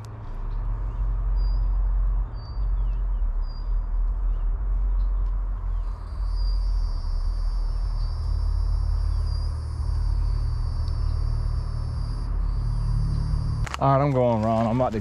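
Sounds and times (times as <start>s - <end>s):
low rumble: 0.0s - 15.0s
insect trill: 5.7s - 13.8s.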